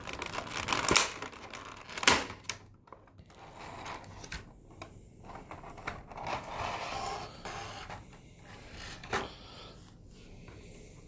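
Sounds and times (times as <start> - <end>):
plastic blister tray crinkling: 0.0 - 3.4.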